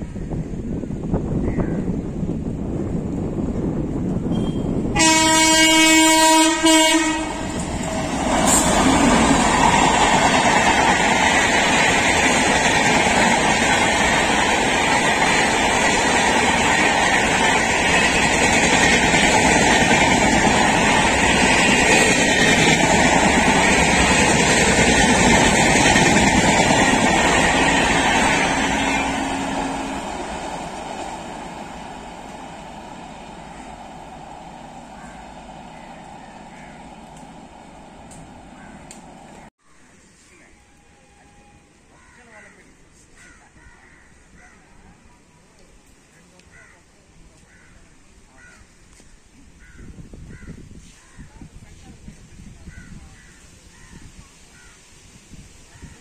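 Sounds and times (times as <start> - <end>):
train wheels rushing on rails: 0.4 - 39.5
locomotive horn: 4.4 - 9.0, 27.4 - 31.6, 40.5 - 41.9.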